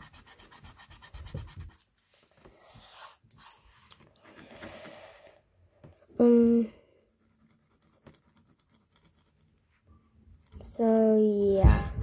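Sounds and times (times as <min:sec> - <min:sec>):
eraser rubbing on paper: 0:00.0 - 0:01.8, 0:07.1 - 0:09.6
pencil strokes on paper: 0:00.0 - 0:04.0, 0:06.8 - 0:11.9.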